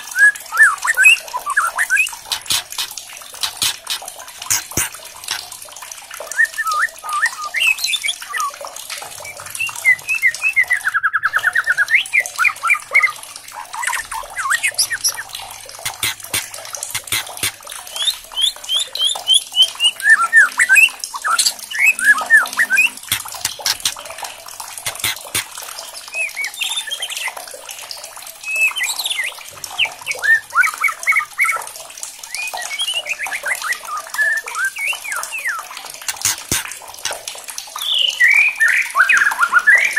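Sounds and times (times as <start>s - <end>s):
bird singing whistles and trills: 0.0s - 2.8s, 6.2s - 8.6s, 9.2s - 13.2s, 17.8s - 23.8s, 26.1s - 27.4s, 28.4s - 31.6s, 32.3s - 36.4s, 37.8s - 39.9s
sharp clicks: 2.3s - 5.5s, 15.8s - 17.6s, 23.0s - 24.1s, 24.9s - 25.5s, 36.1s - 37.2s.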